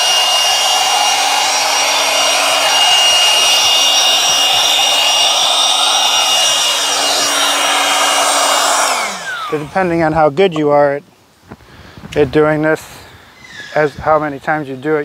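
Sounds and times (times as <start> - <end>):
electric air pump whining: 0.0 - 10.0.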